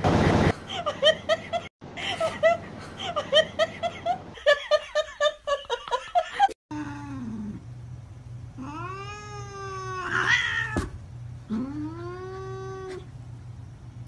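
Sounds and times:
low steady hum: 0:00.4 - 0:14.0
cat yowling: 0:08.6 - 0:10.9.

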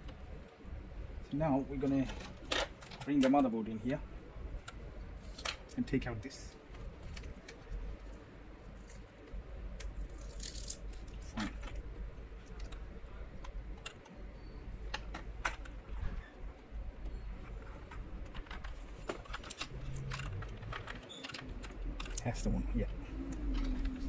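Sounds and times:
low steady hum: 0:00.0 - 0:24.0
plastic parts clicking and rustling: 0:01.8 - 0:03.6, 0:04.6 - 0:05.8, 0:06.6 - 0:14.2, 0:14.9 - 0:16.3, 0:17.0 - 0:24.0.

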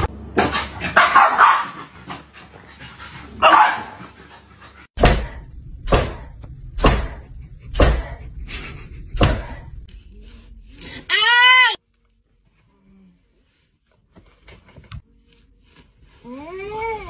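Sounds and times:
dog barking: 0:00.5 - 0:01.9, 0:03.4 - 0:04.0.

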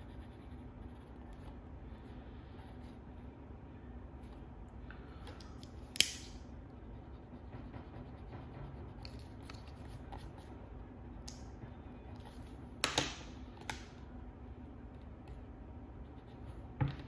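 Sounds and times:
drawing tool scratching on paper: 0:06.9 - 0:10.5.

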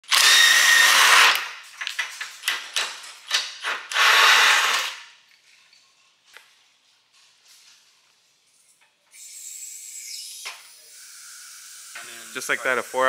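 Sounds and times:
power tool running: 0:00.0 - 0:01.4.

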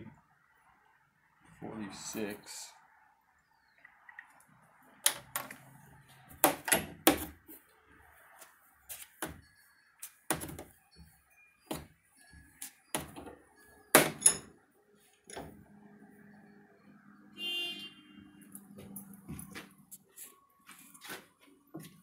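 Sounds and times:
metal clanks and clicks: 0:14.0 - 0:14.5.

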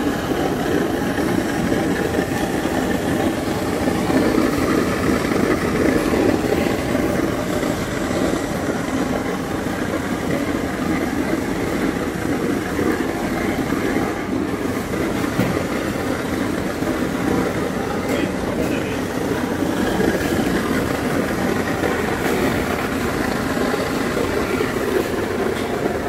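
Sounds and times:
packaging machine running: 0:00.1 - 0:26.0.

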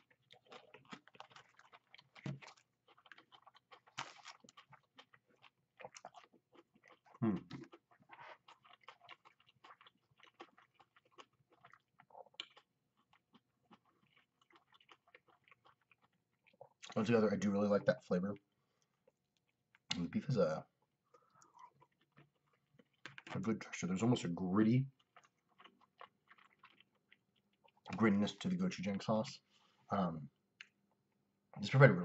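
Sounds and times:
person chewing food: 0:00.0 - 0:17.0, 0:18.4 - 0:20.1, 0:20.7 - 0:23.4, 0:24.9 - 0:28.1.

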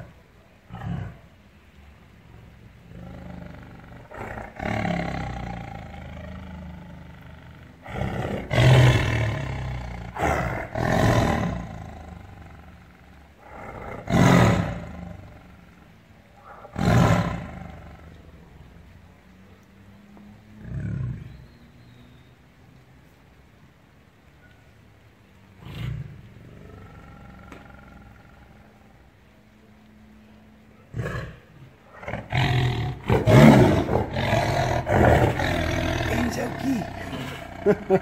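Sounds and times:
tiger roaring and growling: 0:00.0 - 0:01.4, 0:02.3 - 0:18.7, 0:20.4 - 0:21.4, 0:25.5 - 0:29.3, 0:30.9 - 0:38.0.

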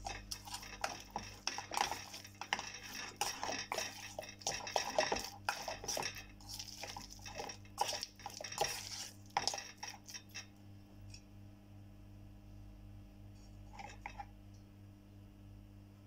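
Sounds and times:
spoon scraping steel bowl: 0:00.0 - 0:10.5, 0:13.6 - 0:14.3
faint steady hum: 0:00.0 - 0:16.0.

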